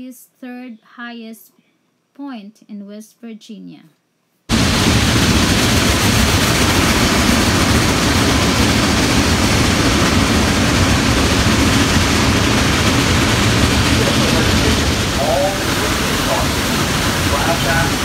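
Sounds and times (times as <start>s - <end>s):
steam locomotive rumbling: 4.5s - 18.0s.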